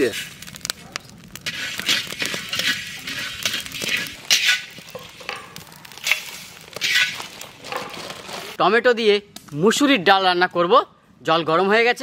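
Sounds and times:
metal spatula scraping spices in pan: 0:00.0 - 0:00.5, 0:01.4 - 0:08.6.

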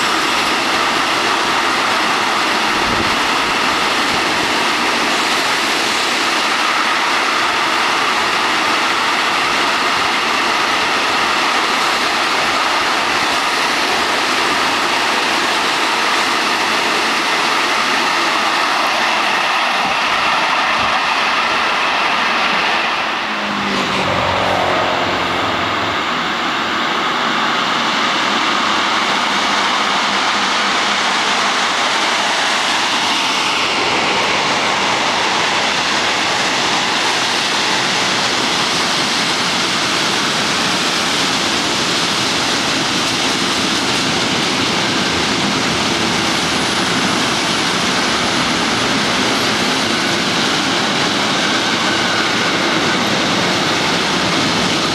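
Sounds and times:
freight train rumbling over rails: 0:00.0 - 0:54.9
brief falling tone: 0:23.2 - 0:26.9.

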